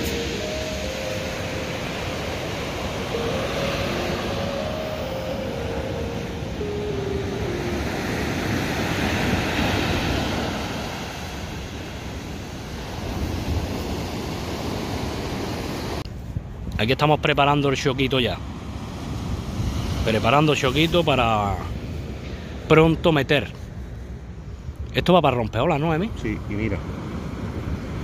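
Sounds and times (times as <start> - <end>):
sea surf washing on beach: 0.0 - 23.8
wind rumbling on microphone: 7.4 - 16.9.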